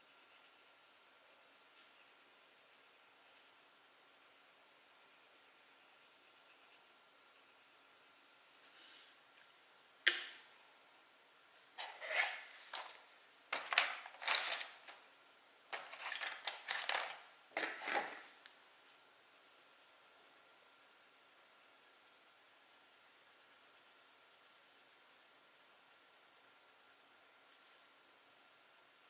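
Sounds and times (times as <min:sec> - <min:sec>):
drawing tool scratching paper: 0:11.8 - 0:13.0.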